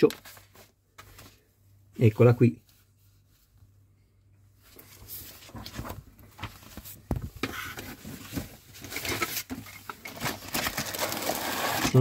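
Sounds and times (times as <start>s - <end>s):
paper and cardboard rustling: 4.7s - 12.0s.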